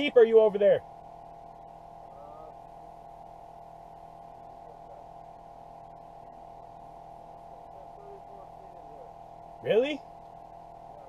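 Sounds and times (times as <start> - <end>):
steady hum: 0.0 - 11.0
distant voice calling: 6.1 - 10.1.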